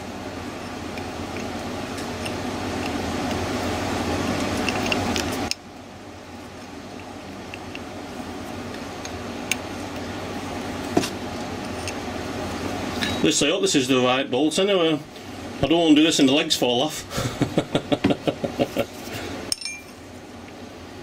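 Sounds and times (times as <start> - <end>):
background hum: 0.0 - 21.0.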